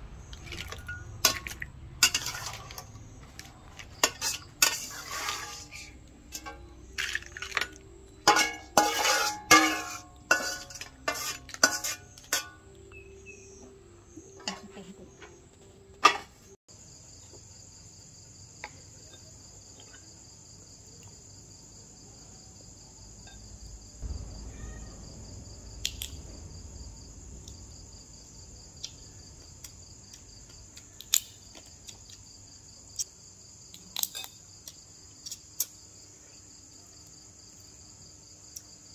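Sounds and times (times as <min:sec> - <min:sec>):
insects chirring: 0:00.0 - 0:38.9
low rumble: 0:24.0 - 0:30.8.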